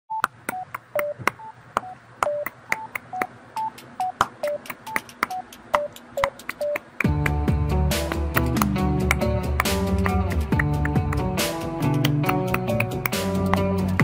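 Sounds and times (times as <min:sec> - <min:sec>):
electronic keypad beeps: 0:00.1 - 0:06.9
sharp clicks: 0:00.2 - 0:07.4.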